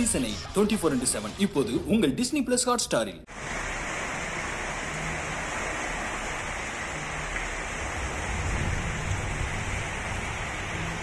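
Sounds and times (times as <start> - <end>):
heavy rain and floodwater rushing: 3.3 - 11.0
low rumble: 7.0 - 11.0.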